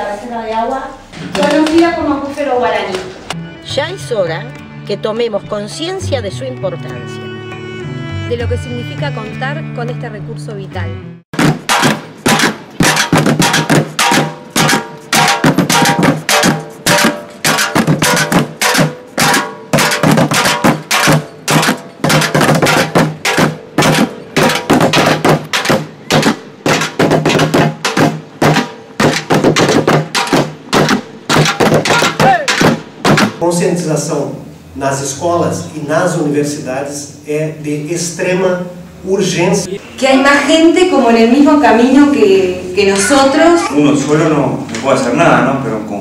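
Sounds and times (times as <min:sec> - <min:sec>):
fast steady drum beat: 0:11.4 - 0:33.4.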